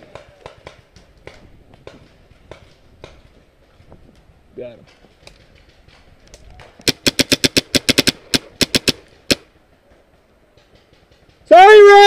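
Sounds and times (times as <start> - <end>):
paintball marker firing: 5.2 - 9.5.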